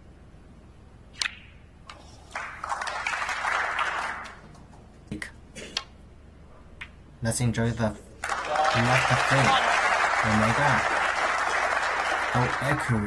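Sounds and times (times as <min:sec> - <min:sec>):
audience applause: 0:02.3 - 0:04.6, 0:08.2 - 0:13.0.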